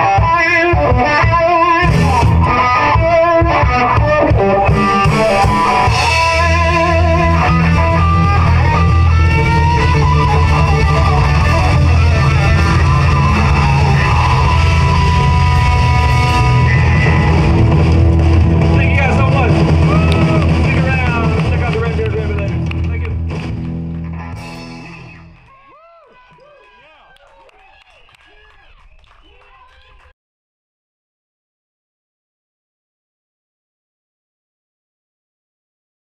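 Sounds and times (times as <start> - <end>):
electric guitar with vibrato bends: 0.0 - 25.5
live band music: 0.0 - 25.6.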